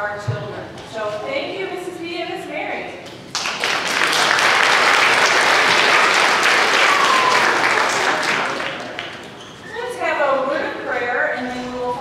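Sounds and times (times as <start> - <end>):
audience applauding: 3.3 - 9.4.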